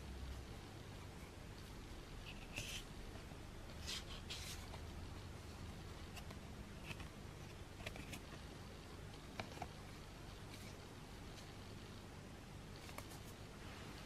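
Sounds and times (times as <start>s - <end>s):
photo cards sliding and rubbing: 2.2s - 3.0s, 3.7s - 4.9s, 6.0s - 8.5s, 9.3s - 11.6s, 12.7s - 13.5s.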